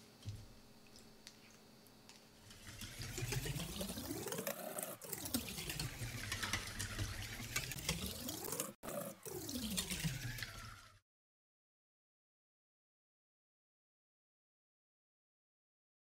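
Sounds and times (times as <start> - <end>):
liquid sloshing: 2.4 - 10.9
whisk clicking against metal bowl: 5.2 - 8.3.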